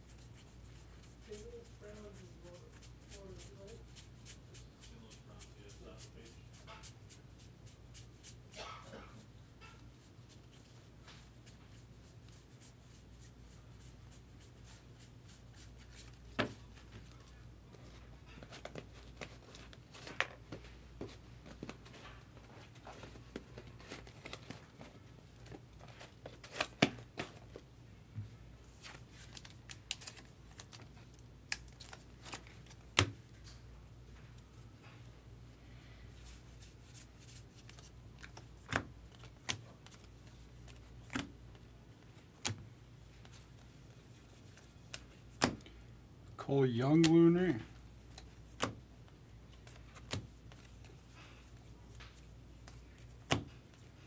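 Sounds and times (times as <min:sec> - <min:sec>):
cards flipped and shuffled: 0:13.8 - 0:27.6, 0:28.7 - 0:33.6, 0:36.2 - 0:45.8, 0:46.9 - 0:48.8, 0:49.5 - 0:54.0.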